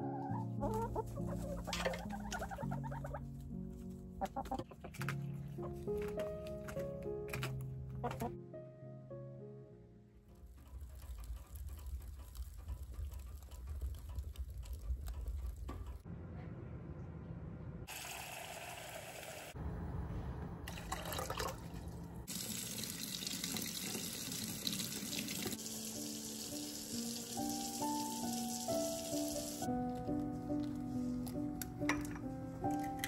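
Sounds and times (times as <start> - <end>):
soft piano music: 0.0 - 12.7, 25.5 - 33.0
wood fire crackling: 10.2 - 16.1
water running into saucepan: 17.9 - 19.6, 20.7 - 29.6
vinegar pouring into water: 20.7 - 25.6.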